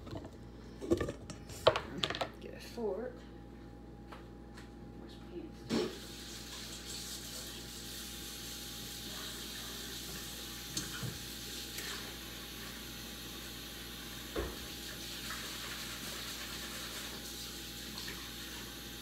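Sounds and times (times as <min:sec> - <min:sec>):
tap running into sink: 0:14.3 - 0:14.7.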